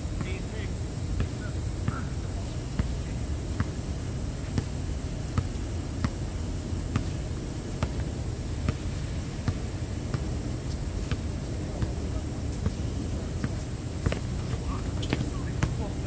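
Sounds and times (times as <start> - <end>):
basketball bouncing on hard court: 6.9 - 7.2, 7.8 - 8.8, 9.4 - 10.3, 13.4 - 15.9.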